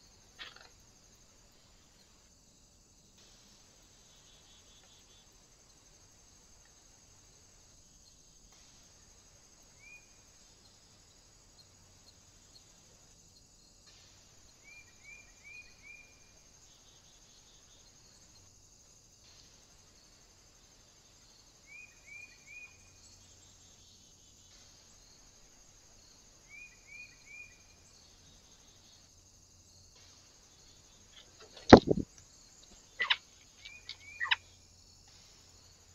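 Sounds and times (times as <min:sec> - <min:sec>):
insects chirring: 0:00.0 - 0:35.9
bird chirping: 0:32.6 - 0:34.6.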